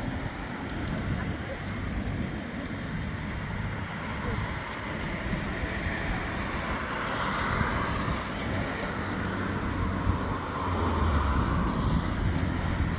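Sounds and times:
cars passing on road: 0.0s - 12.9s.

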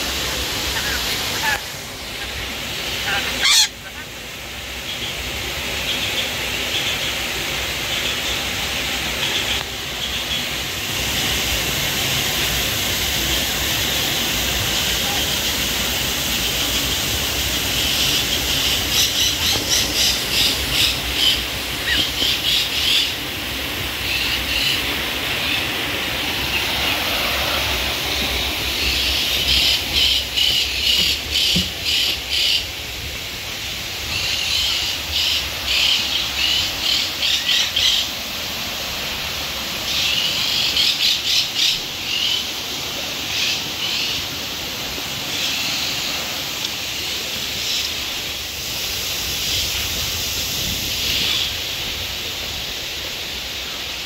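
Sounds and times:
pulsing high-pitched animal calls: 3.0s - 4.1s.

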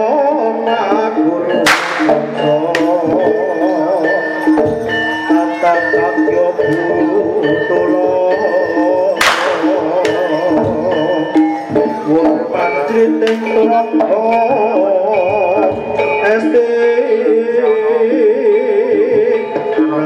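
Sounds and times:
wavering melody with vibrato: 0.0s - 20.0s
struck metal tones: 1.6s - 3.3s
drums: 4.3s - 7.6s, 9.2s - 16.8s.

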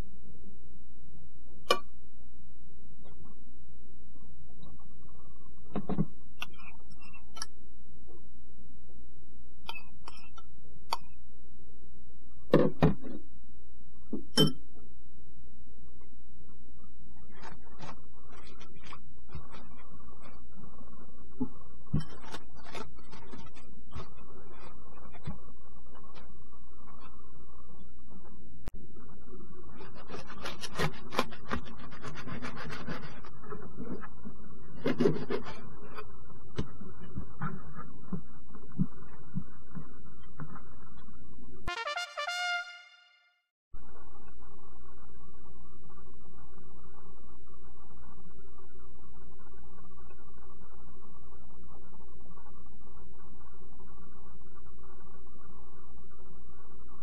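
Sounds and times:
steady low hum: 0.0s - 41.8s.

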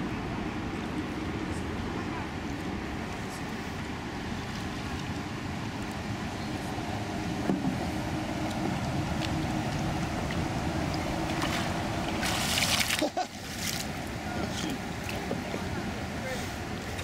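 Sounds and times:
steady low rumble: 0.0s - 17.0s
canoe paddle splashing water: 4.3s - 15.7s.

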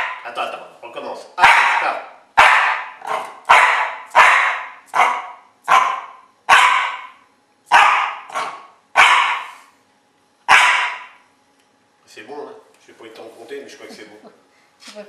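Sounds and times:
dog barking sharply: 0.0s - 0.3s, 1.4s - 9.7s, 10.5s - 11.2s.

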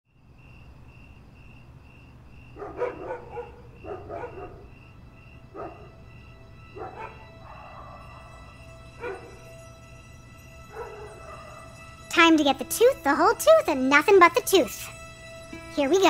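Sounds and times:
insect chirping: 0.1s - 16.0s
dog barking: 2.6s - 4.7s, 5.5s - 5.9s, 6.8s - 8.4s, 9.0s - 9.4s, 10.7s - 11.8s.

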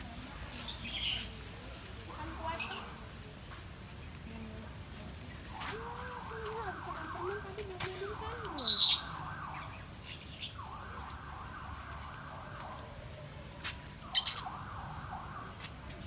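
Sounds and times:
chorus of sweeping bird calls: 0.6s - 1.4s, 8.5s - 11.6s, 14.0s - 15.0s.

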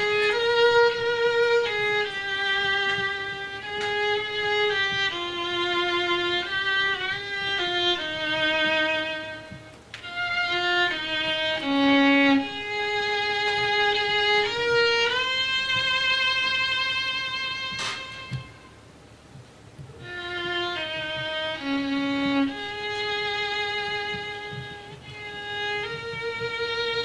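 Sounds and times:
solo violin slow melody: 0.0s - 27.0s.

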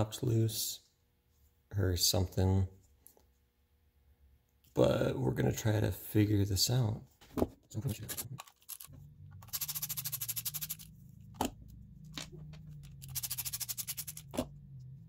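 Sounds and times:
low hum: 8.7s - 15.0s
screwdriver rapid clicking: 13.0s - 14.4s.

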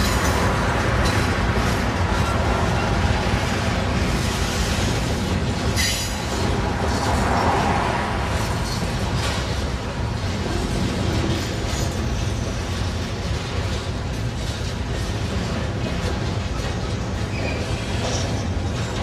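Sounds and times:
freight cars rolling on rails: 0.0s - 19.0s.

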